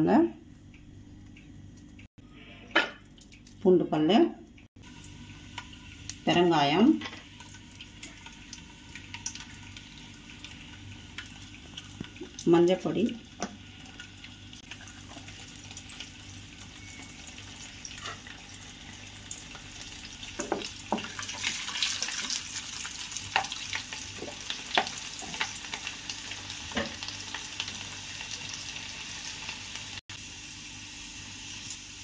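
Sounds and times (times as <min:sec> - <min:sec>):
hot oil sizzling in a pan: 0:04.8 - 0:32.0.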